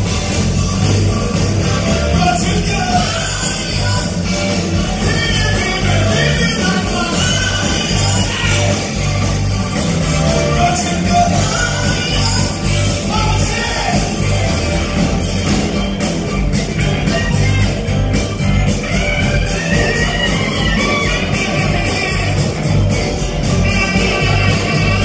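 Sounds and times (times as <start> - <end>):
live funk band playing: 0.0 - 25.0
person singing: 1.6 - 9.2, 10.2 - 14.5.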